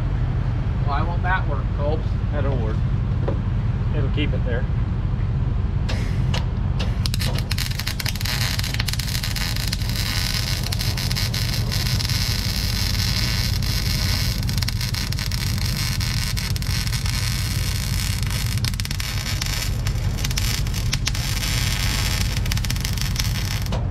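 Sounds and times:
low hum: 0.0s - 23.9s
welding arc crackling: 6.8s - 23.9s.

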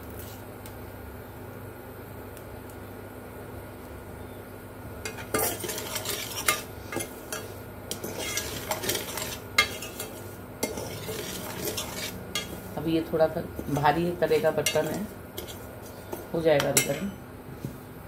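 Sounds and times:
spoon scraping in a pot: 5.0s - 12.8s, 13.6s - 17.2s.

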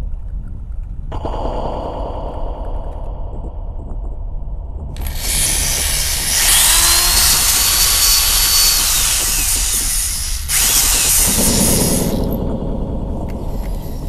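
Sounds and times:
small electric motor whirring: 5.0s - 12.4s, 13.3s - 14.0s.

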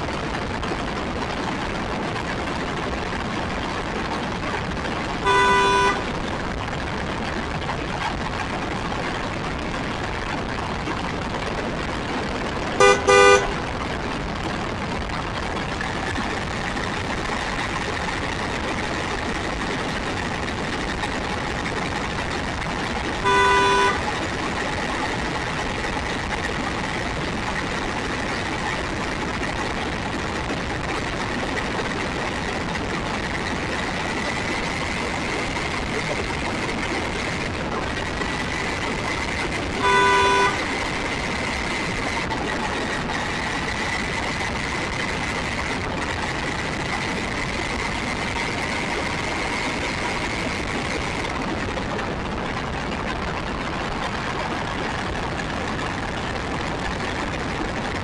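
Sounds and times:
rushing noise: 0.0s - 58.0s
horn toot: 5.2s - 6.1s, 12.8s - 13.6s, 23.2s - 24.1s, 39.8s - 40.9s.

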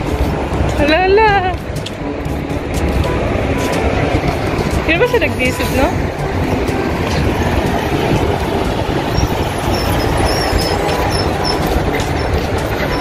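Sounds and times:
heavy road traffic rumbling: 0.0s - 13.0s
large truck passing: 0.0s - 13.0s
faint high squeals: 9.2s - 13.0s.

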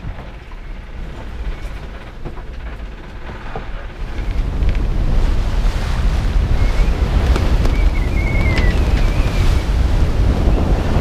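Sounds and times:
sea rushing: 0.0s - 11.0s
wind buffeting microphone: 0.0s - 11.0s
thin wavering whistle: 6.5s - 9.8s.

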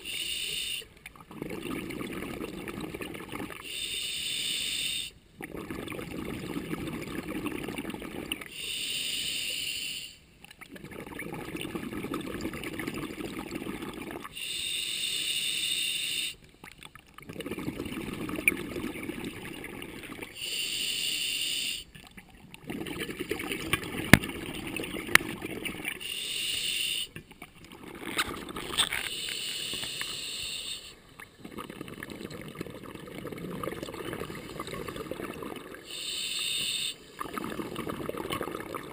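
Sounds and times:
regulator inhale hiss: 0.0s - 0.9s, 3.6s - 5.2s, 8.5s - 10.2s, 14.4s - 16.4s, 20.3s - 21.9s, 26.0s - 27.2s, 29.0s - 31.0s, 35.8s - 37.3s
exhaled bubbles rumbling: 1.0s - 3.6s, 5.4s - 8.5s, 10.4s - 14.3s, 16.6s - 20.4s, 21.9s - 26.0s, 27.2s - 29.1s, 31.0s - 35.9s, 37.1s - 38.9s.

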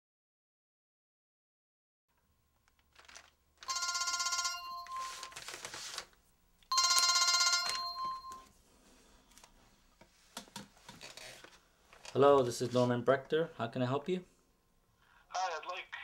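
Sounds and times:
telephone ringing: 3.6s - 5.4s, 6.7s - 8.5s.

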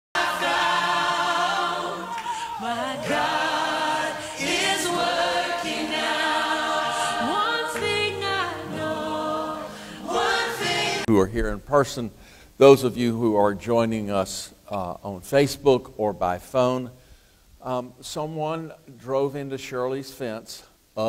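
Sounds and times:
choir singing: 0.1s - 11.1s.

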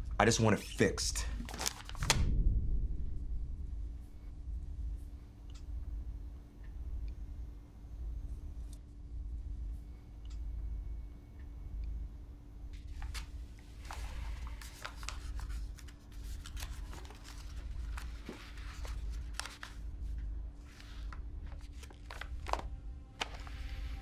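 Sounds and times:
low steady hum: 0.0s - 24.0s
paper rustling: 1.4s - 2.2s, 12.8s - 19.8s, 20.6s - 24.0s.

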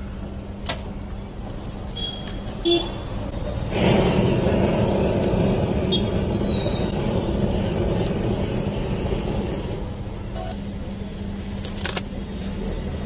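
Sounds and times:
blowtorch flame rushing: 3.4s - 10.3s.

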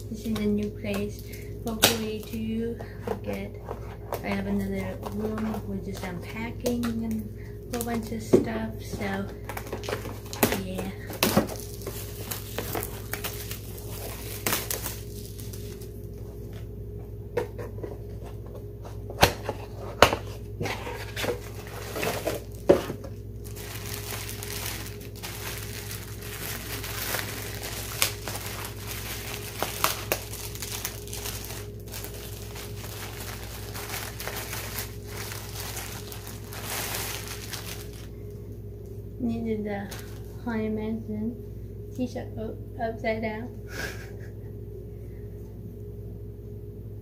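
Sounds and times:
plastic wrapping crinkling and tearing: 0.1s - 16.2s, 19.3s - 38.3s, 39.9s - 40.3s
rustling of plastic and fabric: 0.1s - 16.6s, 19.5s - 38.1s, 39.9s - 40.4s
plastic snapping: 1.7s - 2.3s.

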